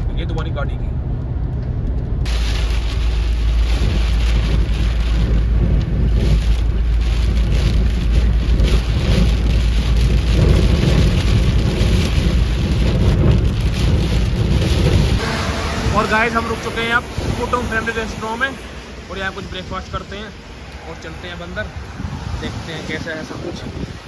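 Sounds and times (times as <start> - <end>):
car driving on wet road: 0.0 - 24.0
heavy rain on car windshield: 2.3 - 24.0.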